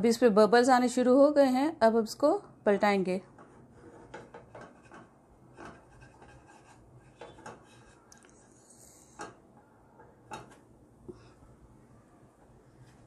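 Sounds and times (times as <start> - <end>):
spatula scraping frying pan: 3.4 - 9.2.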